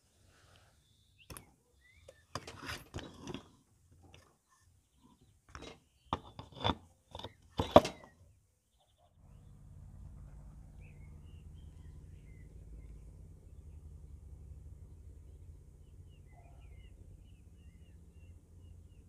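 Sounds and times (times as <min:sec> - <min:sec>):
wheel rim knocks and scrapes: 0:02.4 - 0:04.2, 0:05.5 - 0:08.2.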